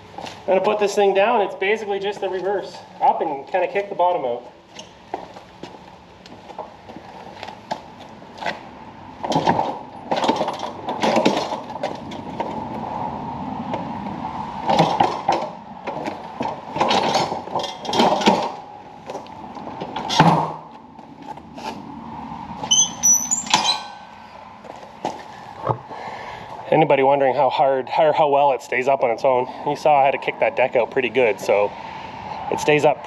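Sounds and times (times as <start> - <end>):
metal mower frame clunking: 9.2 - 12.6, 14.6 - 20.6, 22.6 - 24.2
high squeak: 22.6 - 24.2.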